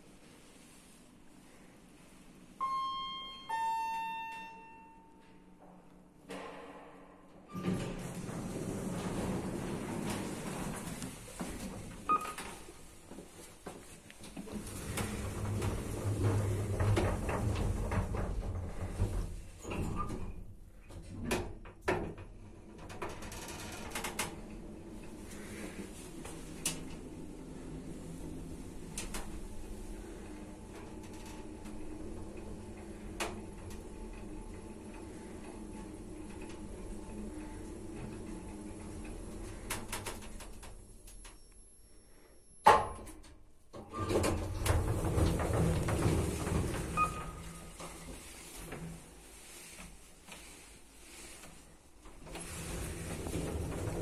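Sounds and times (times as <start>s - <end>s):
elevator humming in motion: 2.5s - 6.3s, 7.0s - 20.4s, 22.3s - 42.7s, 43.9s - 49.8s, 52.2s - 54.0s
lift doors sliding open: 6.3s - 41.4s, 42.6s - 54.0s
lift car humming: 7.6s - 12.3s, 24.4s - 41.1s.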